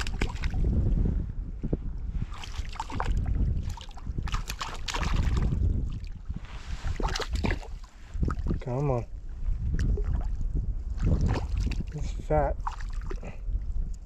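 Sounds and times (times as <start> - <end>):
water splashing: 0.0 - 0.6, 2.3 - 6.2, 6.8 - 8.6, 11.0 - 13.3
wind buffeting microphone: 0.0 - 14.0.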